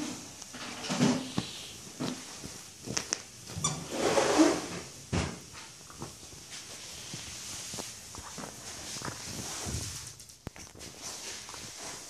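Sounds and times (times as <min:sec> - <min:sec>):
dog scuffling with toy: 0:05.9 - 0:12.0.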